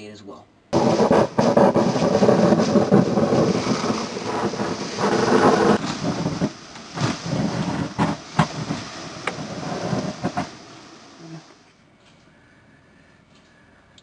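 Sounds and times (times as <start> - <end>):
irregular knocks in hose: 0.8 - 10.6
insulation rushing through hose: 0.8 - 11.7.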